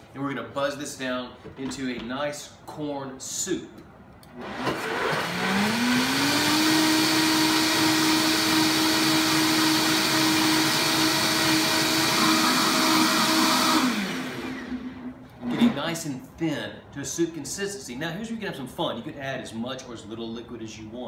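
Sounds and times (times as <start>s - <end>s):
blender motor running: 4.4s - 15.1s.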